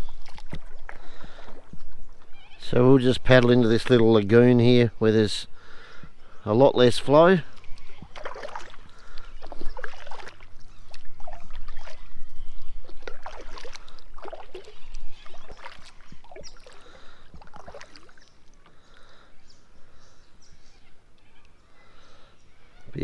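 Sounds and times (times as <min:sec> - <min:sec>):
kayak paddle strokes splashing: 0:00.0 - 0:02.3, 0:07.0 - 0:19.2
water dripping: 0:07.5 - 0:12.0, 0:12.6 - 0:18.7.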